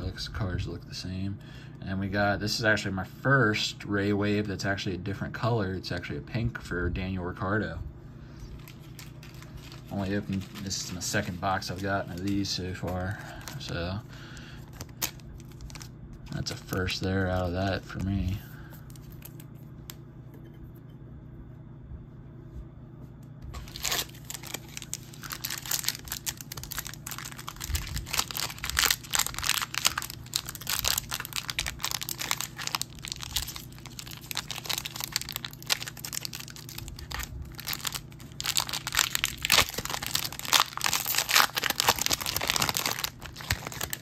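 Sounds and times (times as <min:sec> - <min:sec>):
foil wrapper crinkling: 0:08.4 - 0:19.5, 0:23.5 - 0:44.0.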